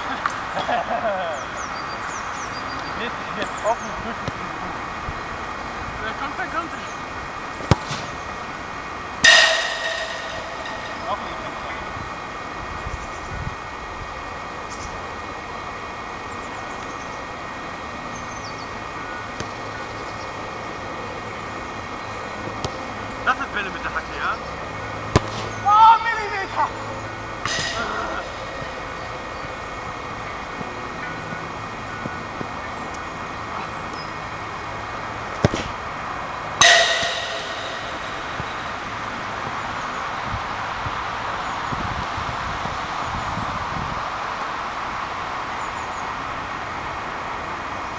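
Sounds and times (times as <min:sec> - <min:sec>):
outdoor hum and hiss: 0:00.0 - 0:47.9
sharp knock: 0:09.2 - 0:11.8, 0:27.5 - 0:29.5, 0:36.6 - 0:39.4
ball clanging on metal: 0:09.2 - 0:12.0, 0:27.4 - 0:29.9, 0:36.6 - 0:39.4.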